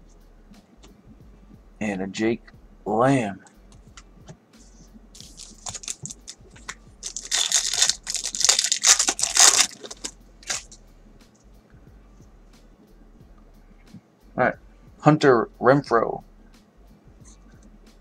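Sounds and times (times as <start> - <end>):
foil wrapper tearing and crinkling: 5.2 - 10.7.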